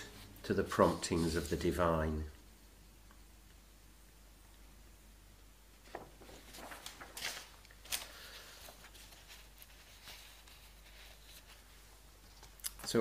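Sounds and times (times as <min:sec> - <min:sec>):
faint rustling: 0:05.8 - 0:13.0.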